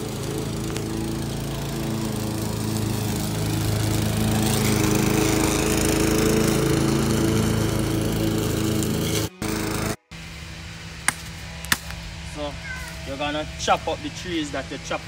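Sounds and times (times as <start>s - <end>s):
lawn mower cutting grass: 0.0s - 15.0s.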